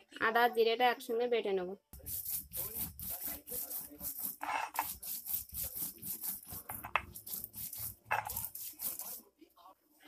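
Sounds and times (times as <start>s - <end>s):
stone grinding scraping: 2.0s - 9.2s.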